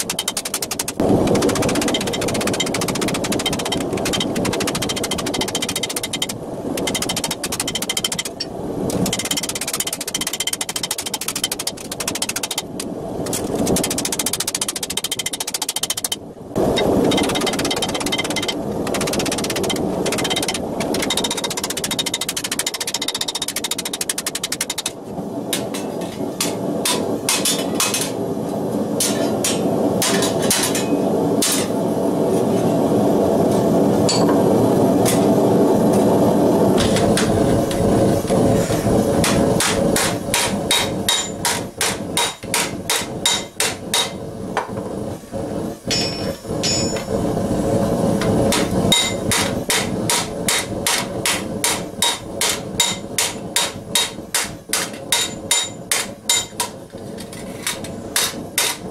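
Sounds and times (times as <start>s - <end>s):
hammer striking hot steel: 0.0s - 28.2s, 28.9s - 31.8s, 33.5s - 36.1s, 36.8s - 44.9s, 45.8s - 47.2s, 48.2s - 58.9s
steady rushing noise: 0.0s - 58.9s.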